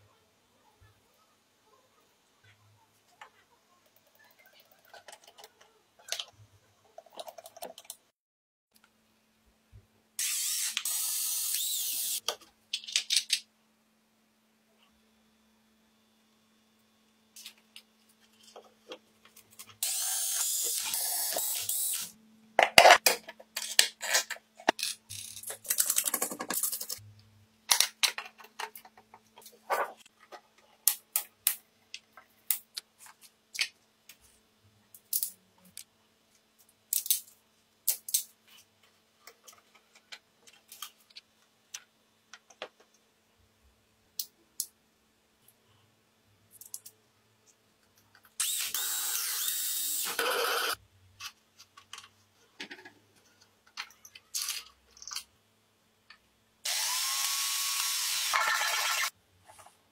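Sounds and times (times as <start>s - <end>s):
small tools clicking and knocking: 22.7s - 27.0s, 51.2s - 55.3s.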